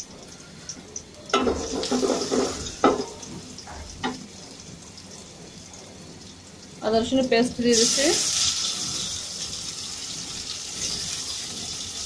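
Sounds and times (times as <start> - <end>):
onions sizzling in oil: 0.0 - 12.0
utensil knocking on metal: 1.3 - 3.2.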